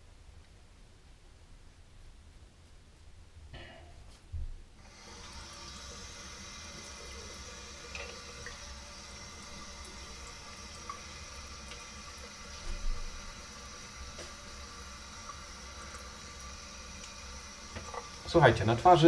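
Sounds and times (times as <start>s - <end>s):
tap running into sink: 12.5s - 13.2s, 14.1s - 14.5s, 17.7s - 18.4s.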